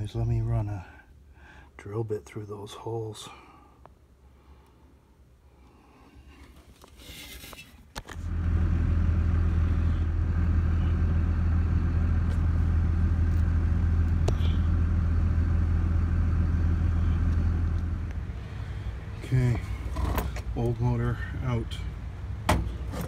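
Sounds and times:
vehicle engine idling: 0:08.1 - 0:23.0.

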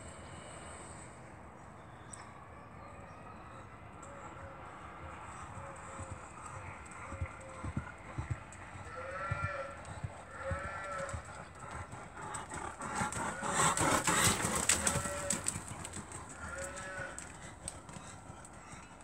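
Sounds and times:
horse hooves on soft ground: 0:05.2 - 0:19.0.

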